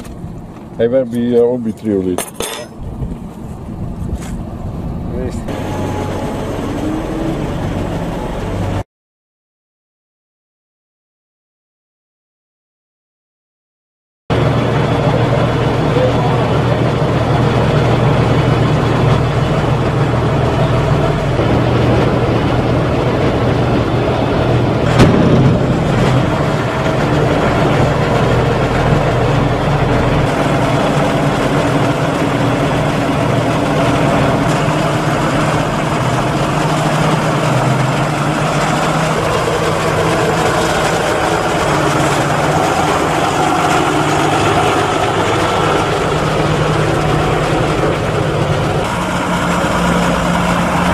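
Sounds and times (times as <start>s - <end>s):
tractor diesel engines running: 0.0s - 8.8s, 14.3s - 50.9s
sharp bang: 24.8s - 27.8s.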